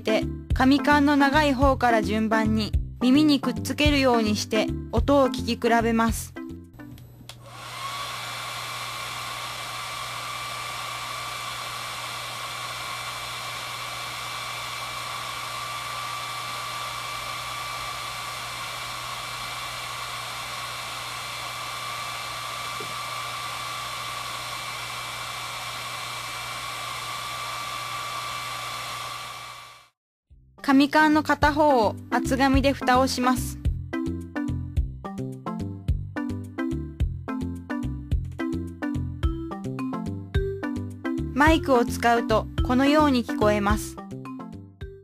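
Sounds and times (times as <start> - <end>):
hair dryer running: 6.9 - 30.0.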